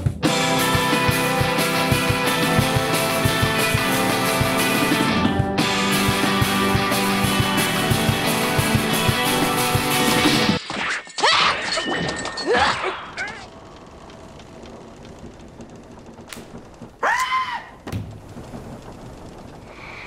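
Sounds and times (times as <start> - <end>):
rock band music: 0.0 - 10.6
brief rising and falling cry: 17.0 - 17.8
thumps: 17.8 - 19.6.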